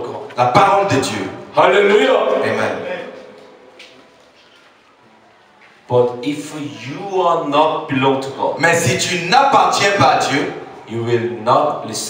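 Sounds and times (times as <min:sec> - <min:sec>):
spoken word echoing: 0:00.0 - 0:04.4.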